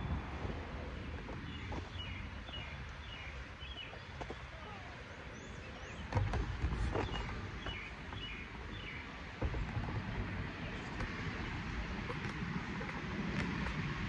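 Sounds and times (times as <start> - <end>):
steady low rumble: 0.0 - 14.0
small birds chirping: 1.3 - 9.1.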